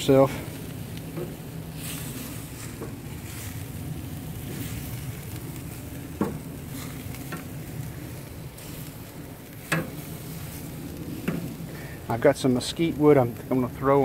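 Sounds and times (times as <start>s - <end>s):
meat sizzling on grill: 0.0s - 14.0s
metal tongs clacking on grate: 9.6s - 10.0s, 11.2s - 11.5s.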